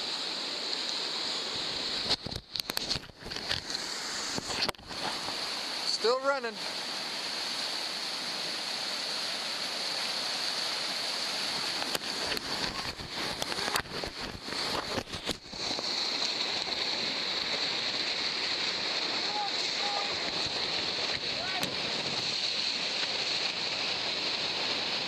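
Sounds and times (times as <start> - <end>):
whitewater rapids rushing: 3.4 - 25.0
splashes and knocks: 11.7 - 16.8, 19.6 - 23.8.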